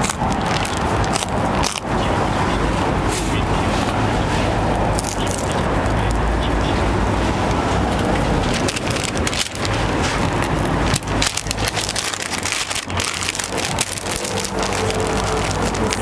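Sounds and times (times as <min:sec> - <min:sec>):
paper wrapper crinkling: 0:00.0 - 0:02.2, 0:04.9 - 0:06.2, 0:07.4 - 0:16.0.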